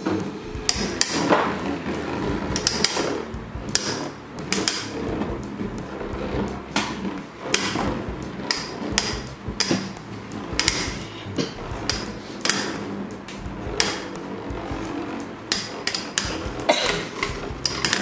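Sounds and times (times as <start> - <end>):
spinning tops whirring on plastic: 0.0 - 18.0
metal spinning tops clashing: 15.5 - 18.0.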